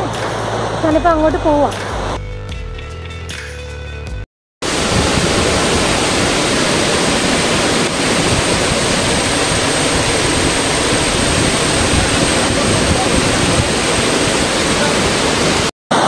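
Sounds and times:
waterfall rushing: 4.6s - 16.0s.

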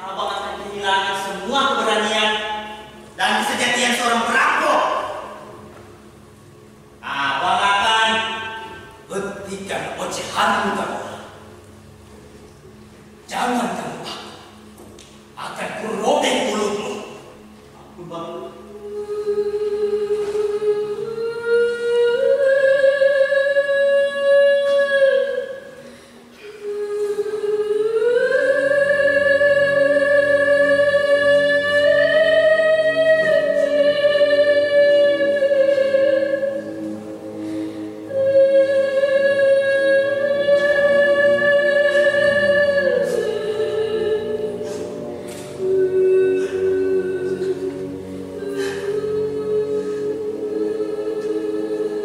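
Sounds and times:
soft sustained accompaniment: 0.0s - 52.0s
person singing long notes: 15.8s - 52.0s.

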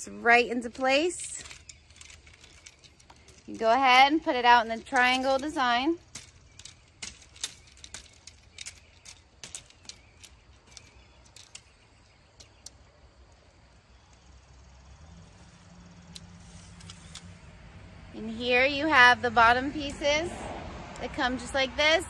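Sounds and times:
metal easel legs clicking: 0.6s - 12.8s, 16.0s - 17.4s.

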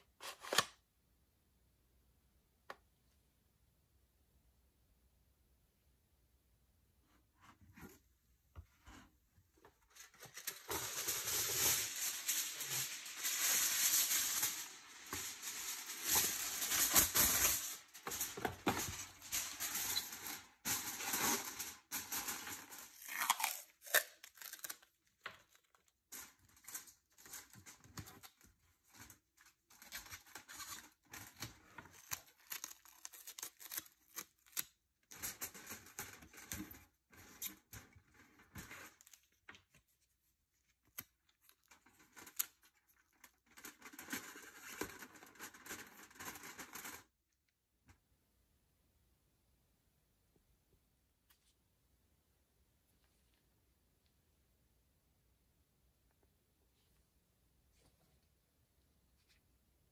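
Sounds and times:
aluminium foil crinkling: 9.8s - 39.9s, 40.5s - 47.1s.

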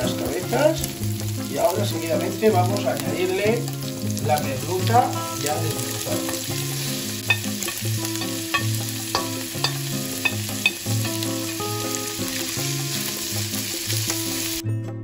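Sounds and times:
fish sizzling in a frying pan: 0.0s - 14.6s
spatula clicking against pan: 7.2s - 11.3s.

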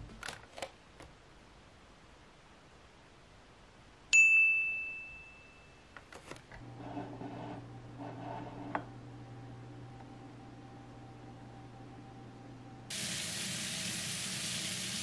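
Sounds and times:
low steady hum: 0.0s - 13.3s
bell-like ding: 4.2s - 6.0s.

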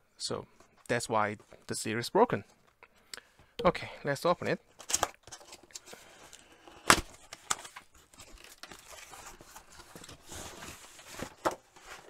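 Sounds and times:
cardboard flaps scraping and rustling: 7.6s - 12.0s.

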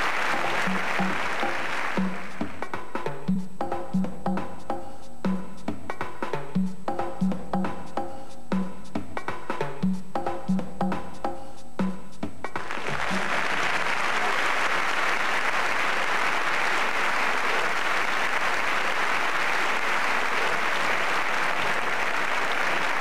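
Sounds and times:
studio audience applauding: 0.0s - 2.7s, 12.5s - 23.0s.

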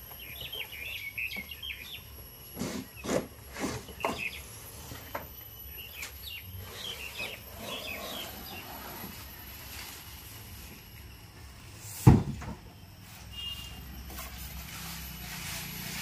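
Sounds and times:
small birds chirping: 0.0s - 3.2s, 3.8s - 9.3s, 13.3s - 14.4s
cardboard scraping and rustling: 6.6s - 10.9s.

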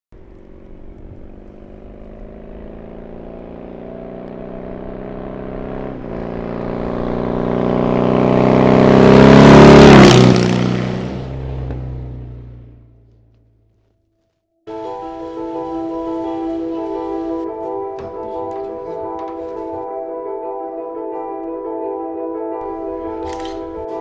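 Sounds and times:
motorcycle riding past: 0.2s - 13.4s.

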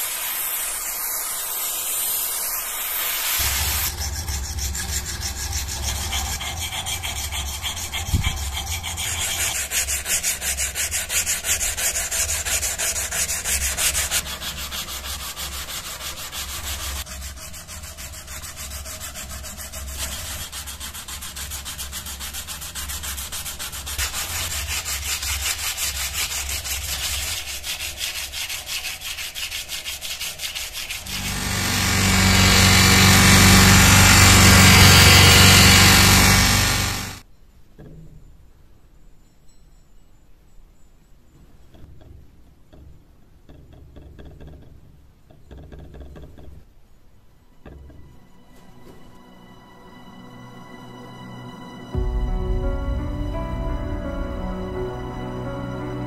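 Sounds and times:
knife drawn along strop: 0.0s - 28.2s, 29.3s - 37.2s
electric buffing wheel humming: 0.1s - 9.4s, 31.0s - 37.2s.

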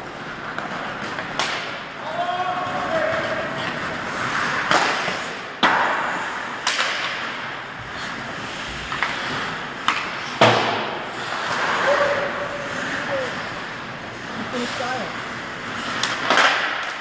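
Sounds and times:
hockey sticks and puck clacking: 0.1s - 17.0s
hiss of rink noise: 3.6s - 16.9s.

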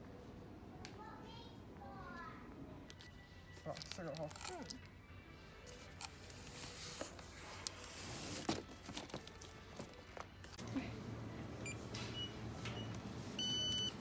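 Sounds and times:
barcode scanner beeping: 11.6s - 14.0s.

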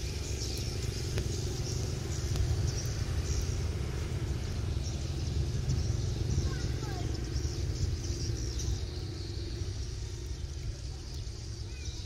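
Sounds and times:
steady low rumble: 0.0s - 11.8s.

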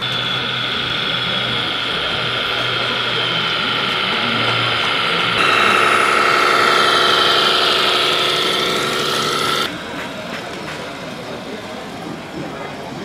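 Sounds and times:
toy truck motor whine: 0.0s - 9.8s.

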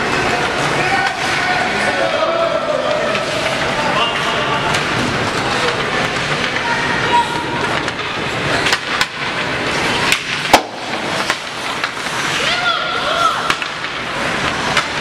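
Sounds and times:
hockey sticks and puck clacking: 0.0s - 15.0s
spectator chatter: 0.0s - 15.0s
loud sharp crack: 10.1s - 12.0s
people shouting: 12.3s - 13.8s.

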